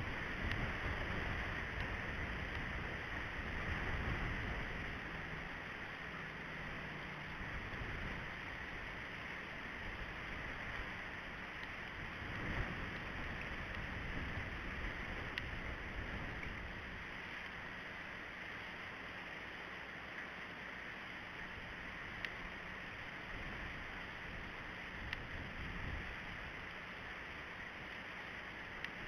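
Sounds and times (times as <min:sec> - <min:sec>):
wind noise on microphone: 0:00.0 - 0:05.6, 0:11.8 - 0:17.1, 0:23.3 - 0:26.5
faint tick: 0:00.4 - 0:00.7, 0:01.8 - 0:02.7, 0:11.6 - 0:13.9, 0:15.2 - 0:15.6, 0:16.2 - 0:16.7, 0:17.4 - 0:17.6, 0:20.1 - 0:20.3, 0:22.2 - 0:22.4, 0:25.0 - 0:25.3, 0:28.7 - 0:29.0.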